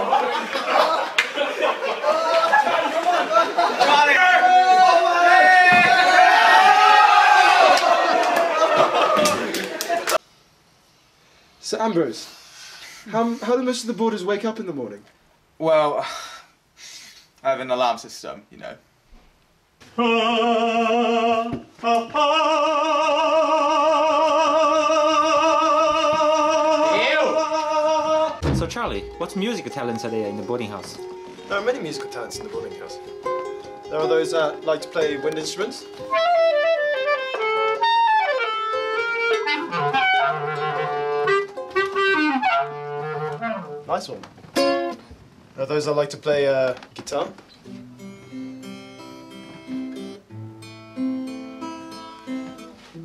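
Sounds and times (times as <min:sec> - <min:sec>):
wind instrument playing a tune: 0:33.9 - 0:43.9.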